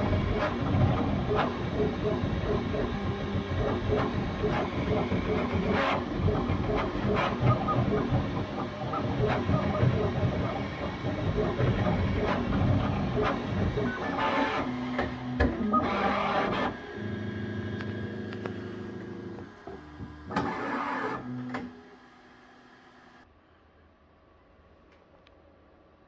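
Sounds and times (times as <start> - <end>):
three-d printer motors whining: 0.0 - 22.4.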